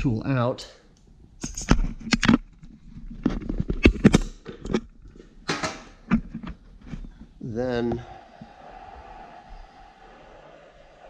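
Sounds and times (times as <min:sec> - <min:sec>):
air hose coupler clicks and knocks: 0:05.5 - 0:05.9
air rushing: 0:08.0 - 0:11.0.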